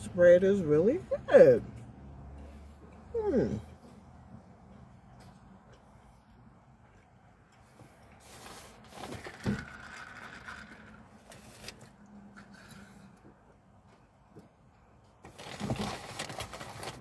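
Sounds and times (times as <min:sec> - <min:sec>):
plastic cup rustling and scraping: 0:08.2 - 0:13.1, 0:15.3 - 0:17.0.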